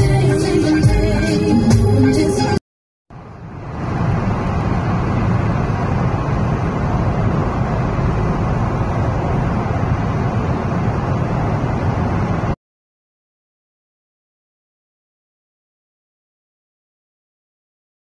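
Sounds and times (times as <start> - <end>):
car road rumble in tunnel: 3.1 - 12.6.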